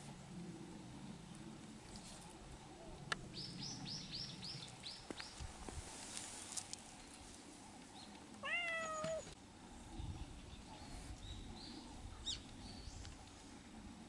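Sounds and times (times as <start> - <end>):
cat meowing: 8.4 - 9.3.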